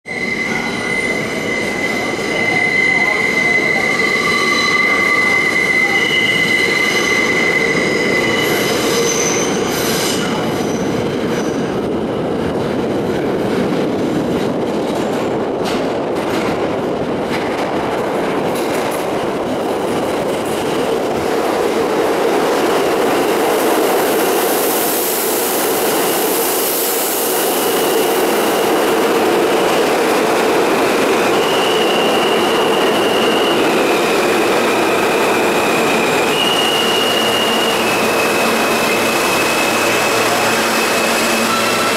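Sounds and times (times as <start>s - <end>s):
train wheel squeal: 0.1s - 11.8s, 23.5s - 29.9s, 31.0s - 41.9s
train cars rumbling on track: 0.1s - 41.9s.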